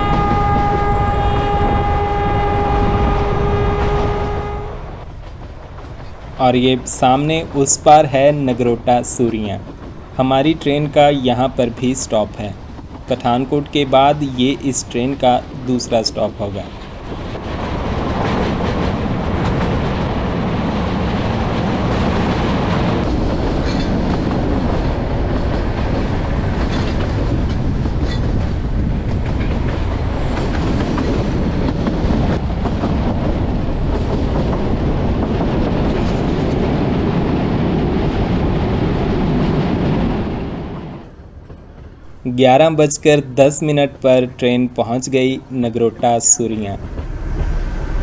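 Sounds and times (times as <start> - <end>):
clickety-clack over rail joints: 0.0 - 43.0, 45.8 - 48.0
train wheels rumbling on rails: 0.0 - 48.0.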